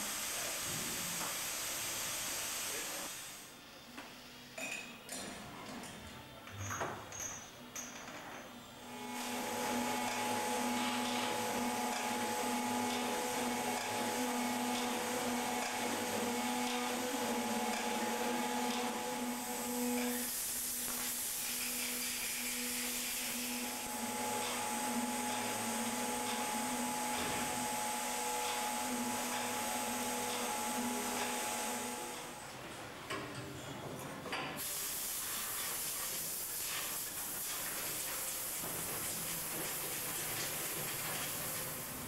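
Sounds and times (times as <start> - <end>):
machine motor hum and whine: 8.8 - 32.5
bright hiss: 19.1 - 23.9, 34.6 - 42.0.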